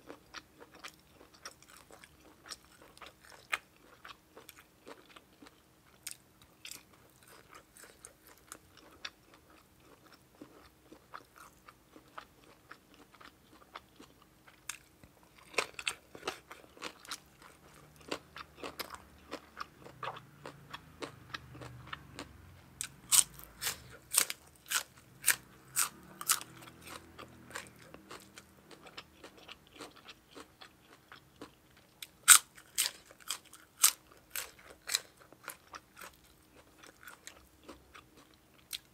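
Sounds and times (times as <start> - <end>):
crunchy chewing of vegetables: 0.0 - 38.9.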